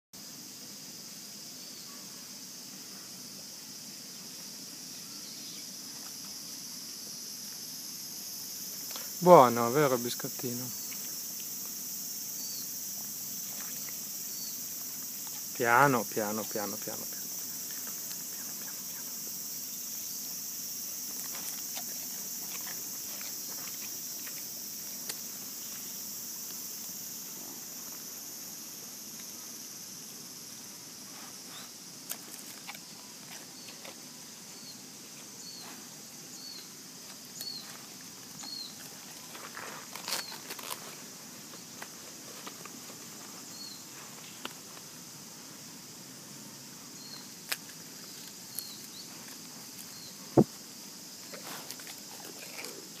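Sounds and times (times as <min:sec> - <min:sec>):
high insect drone: 0:00.2 - 0:53.0
deer crunching a cracker: 0:21.0 - 0:25.5, 0:32.1 - 0:34.1, 0:37.7 - 0:41.1, 0:51.2 - 0:53.0.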